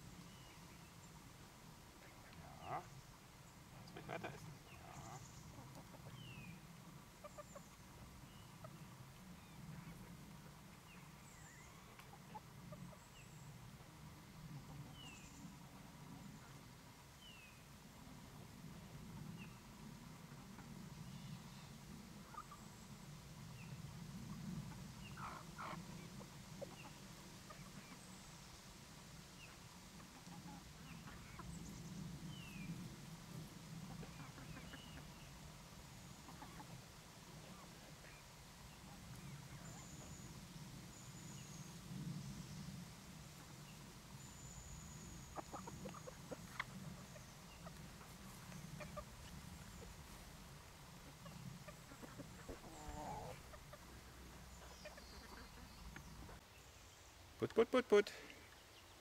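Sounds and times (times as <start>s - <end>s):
chickens calling: 0.0s - 13.8s, 22.1s - 22.8s, 23.5s - 28.3s, 29.4s - 41.8s, 43.3s - 56.5s.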